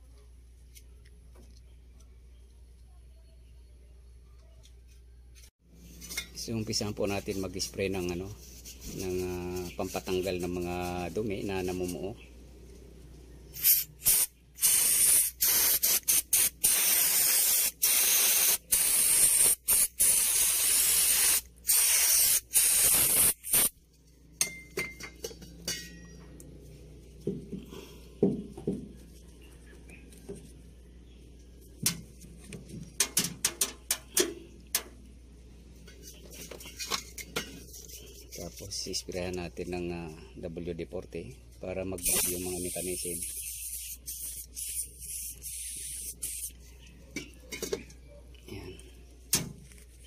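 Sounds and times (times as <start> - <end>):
aerosol spray hissing: 13.6 - 23.7, 42.0 - 46.5.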